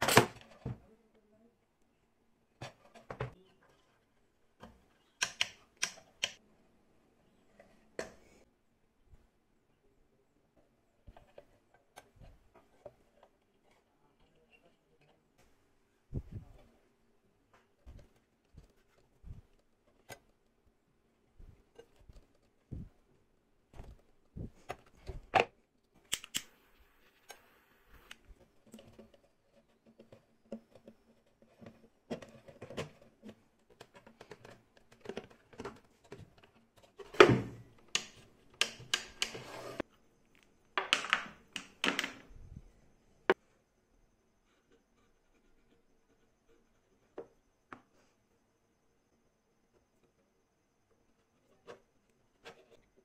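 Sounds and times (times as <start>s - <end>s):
small parts clicking and tapping: 5.2s - 6.4s.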